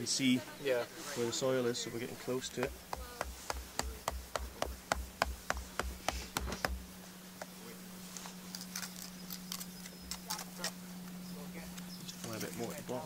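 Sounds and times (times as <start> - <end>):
rapid dull knocking: 2.6 - 6.8.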